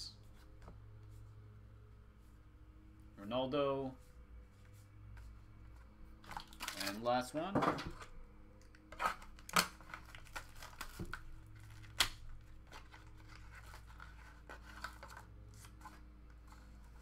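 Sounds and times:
cards rustling: 8.9 - 17.0.

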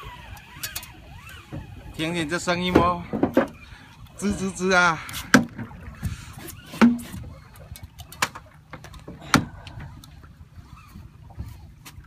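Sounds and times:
fishing reel drag whirring: 0.0 - 2.5.

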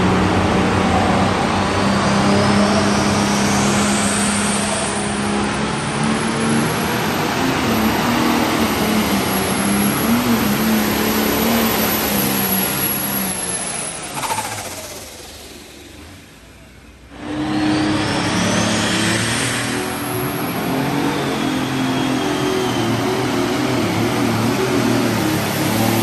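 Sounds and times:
diesel engine at full throttle: 0.0 - 26.0
high turbo whistle: 17.2 - 26.0.

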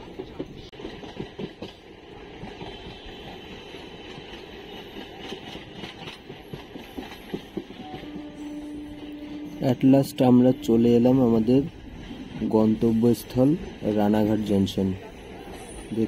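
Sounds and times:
train wheels rumbling on track: 0.0 - 16.0.

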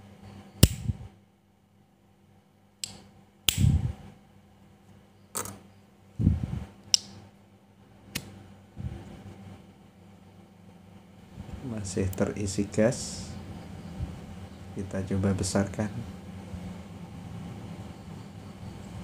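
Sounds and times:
lighter lid clicking: 0.6 - 0.8.

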